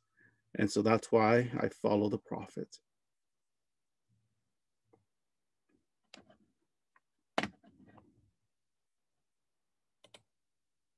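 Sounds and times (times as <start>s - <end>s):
computer mouse clicks: 10.0s - 10.3s.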